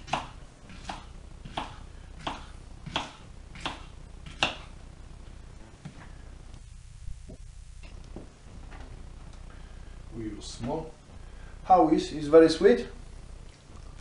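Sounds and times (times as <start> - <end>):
knife chopping on wooden board: 0.0 - 4.7.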